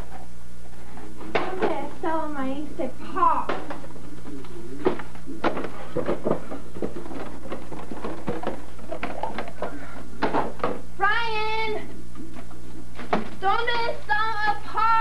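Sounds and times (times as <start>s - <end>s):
steady low hum: 0.0s - 15.0s
boxes knocking and clattering: 4.8s - 10.8s.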